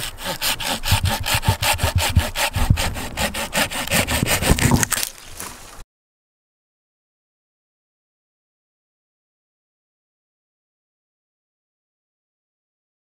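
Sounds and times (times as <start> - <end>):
handsaw cutting branch: 0.0 - 5.6.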